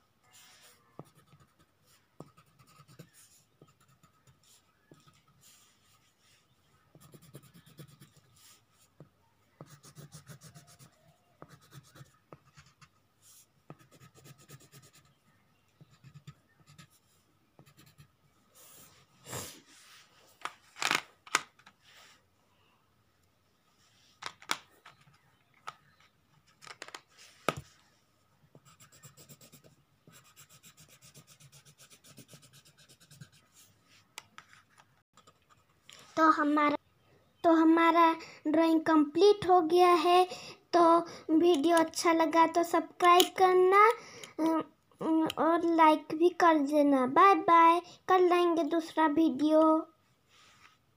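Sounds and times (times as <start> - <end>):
pencil scratching on paper: 0.3 - 9.0, 9.6 - 15.2, 15.8 - 19.9, 28.5 - 33.8.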